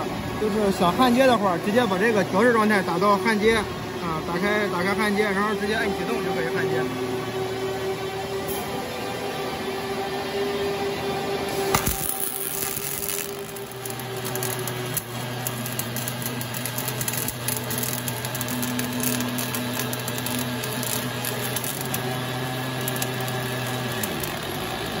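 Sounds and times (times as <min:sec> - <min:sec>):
machine low hum: 0:02.6 - 0:25.0
welding arc crackling: 0:11.5 - 0:25.0.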